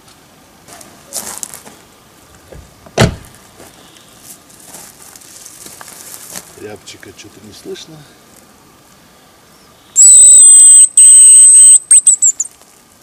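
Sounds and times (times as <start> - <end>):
car door shutting: 3.0 - 3.3.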